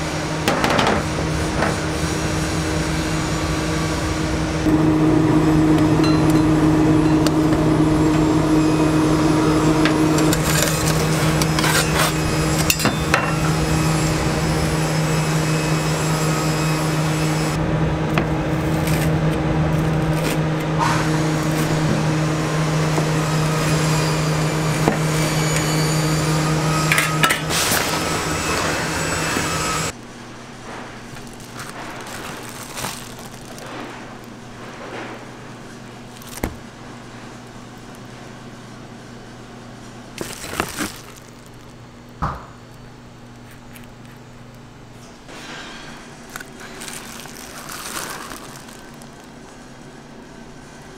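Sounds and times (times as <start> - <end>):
low machine hum: 0.0 - 50.9
metal pan and tongs clanking: 10.2 - 13.5.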